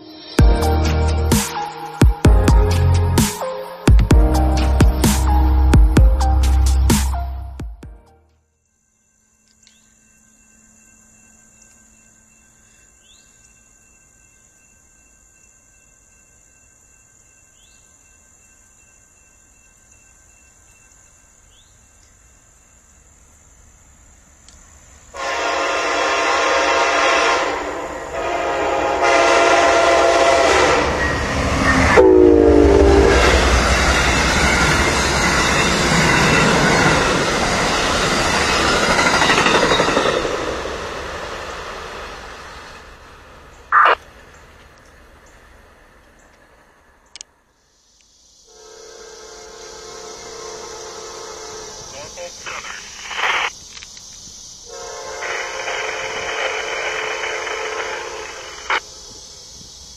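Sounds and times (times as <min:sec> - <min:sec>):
train rolling rumble: 0:24.9 - 0:46.6, 0:54.7 - 0:59.9
train air horn: 0:25.2 - 0:34.9, 0:48.5 - 0:52.2, 0:54.7 - 0:58.8
train wheel clatter: 0:33.4 - 0:41.0.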